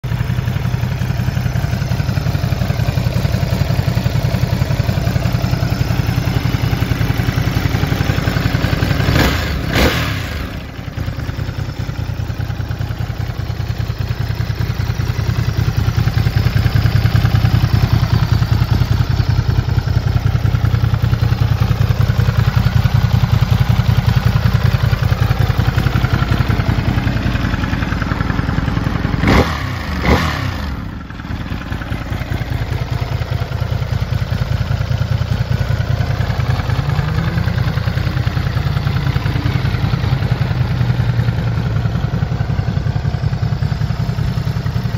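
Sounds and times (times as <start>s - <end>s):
motorcycle engine idling and revving: 0.0s - 44.9s.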